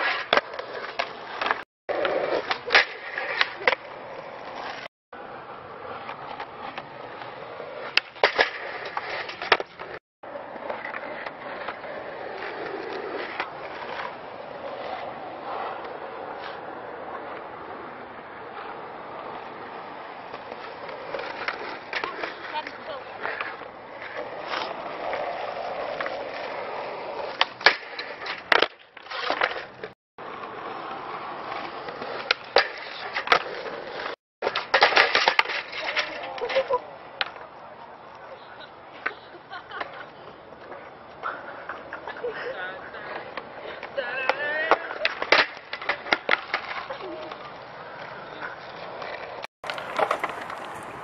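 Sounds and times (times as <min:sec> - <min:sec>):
skateboard rolling on asphalt: 0:00.0 - 0:51.0
skateboard clacks and impacts: 0:31.5 - 0:37.5, 0:43.1 - 0:51.0.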